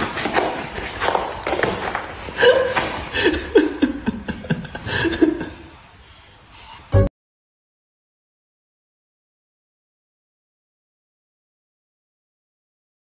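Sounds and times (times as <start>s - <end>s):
person laughing: 2.3s - 5.8s.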